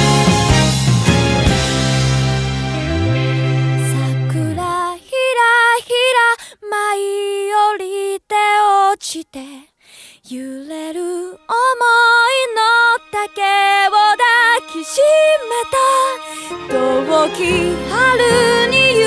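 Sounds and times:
woman singing slow song: 3.8 - 19.0.

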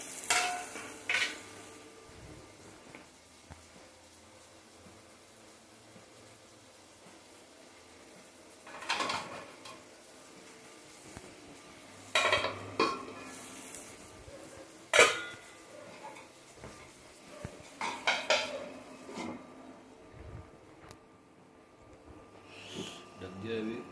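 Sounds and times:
metal pots and utensils clinking: 0.0 - 1.5, 8.6 - 9.8, 12.1 - 13.4, 14.9 - 16.3, 17.7 - 19.4.

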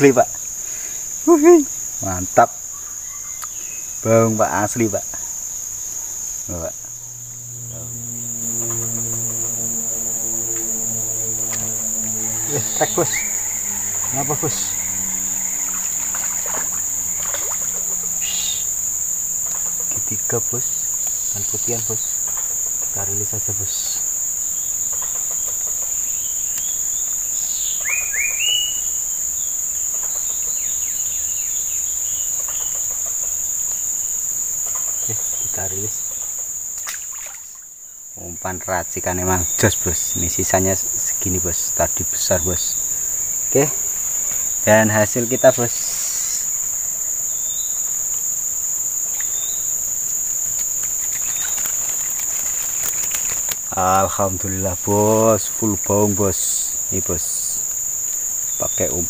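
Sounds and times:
insect chorus shrilling: 0.0 - 59.0
bird calling: 2.7 - 4.0, 5.0 - 20.0, 27.5 - 28.9
faint clicks: 50.6 - 53.7.

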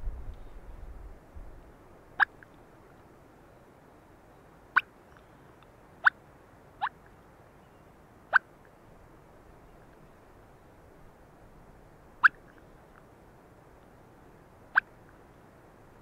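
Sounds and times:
turkey call chirps: 12.2 - 12.6.

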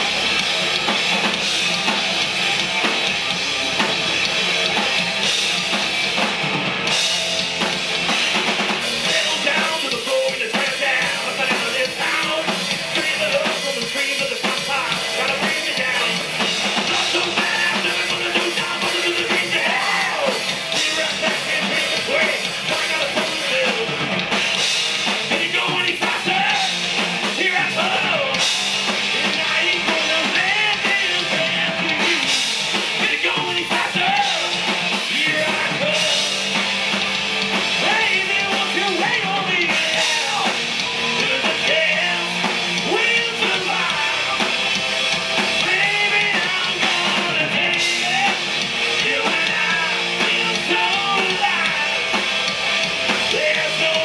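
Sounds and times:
drum kit: 0.0 - 54.0
electric guitars: 0.0 - 54.0
man singing: 9.0 - 24.0, 25.2 - 28.4, 29.1 - 32.4, 33.0 - 36.4, 37.8 - 44.5, 45.6 - 52.2, 53.3 - 54.0.

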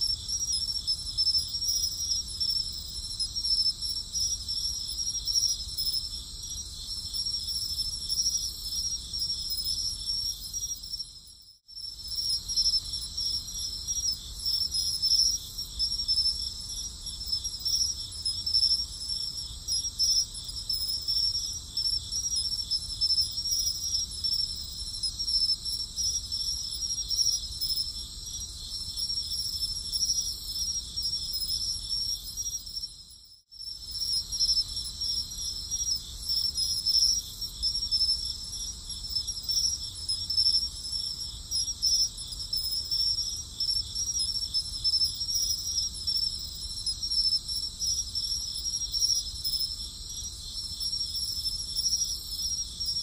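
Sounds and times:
night insects chirping: 0.0 - 53.0.

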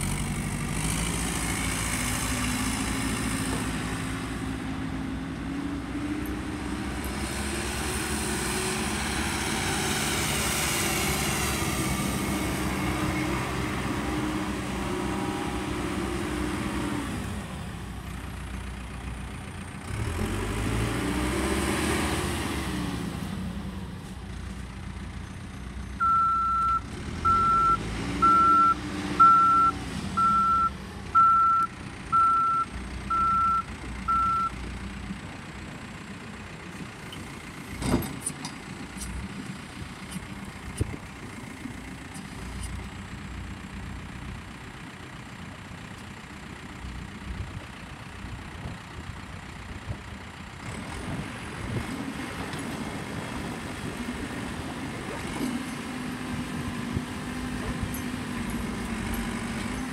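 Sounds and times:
diesel engine revving: 0.0 - 59.9
reverse alarm beeping: 26.0 - 34.5.

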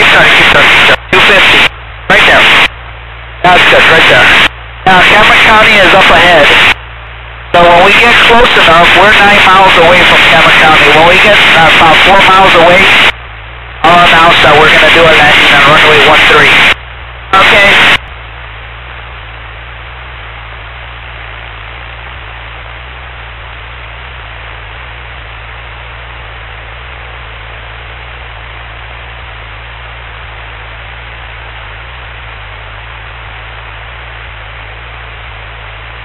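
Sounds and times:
intercom hiss: 0.0 - 2.8, 3.4 - 6.8, 7.5 - 18.0
low steady hum: 0.0 - 36.0.

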